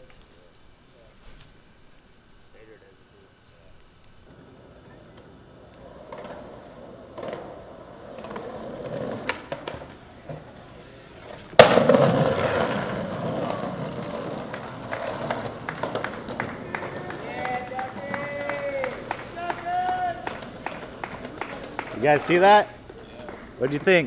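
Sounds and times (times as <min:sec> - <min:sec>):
skateboard wheels rolling on concrete: 0:03.5 - 0:24.0
skateboard clacks: 0:04.3 - 0:10.6, 0:11.2 - 0:24.0
skateboard grinding along rail: 0:04.3 - 0:22.6.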